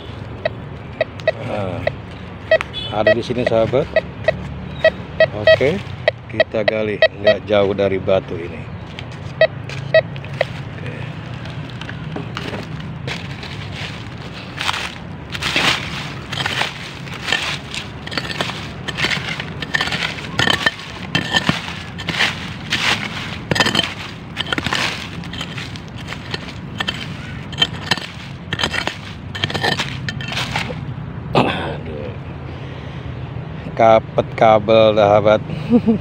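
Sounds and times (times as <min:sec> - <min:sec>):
hoe striking and scraping soil: 0:00.0 - 0:07.4, 0:09.3 - 0:10.7, 0:12.2 - 0:30.8.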